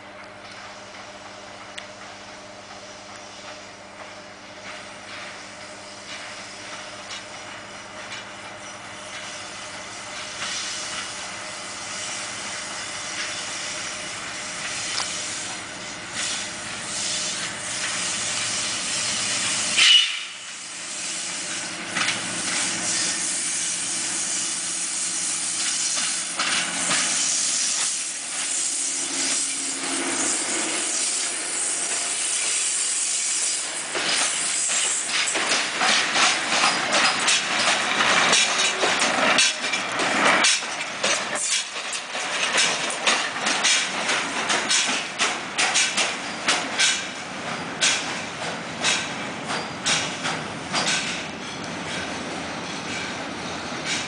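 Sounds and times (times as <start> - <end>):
diesel locomotive engine passing: 0.0 - 54.0
locomotive hiss: 0.6 - 54.0
wheels clacking over rail joints: 21.5 - 23.1, 25.5 - 28.6, 33.8 - 54.0.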